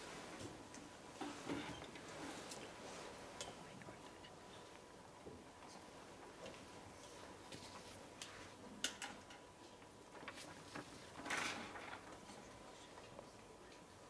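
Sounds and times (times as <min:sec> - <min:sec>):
paper rustle: 0:10.2 - 0:12.0.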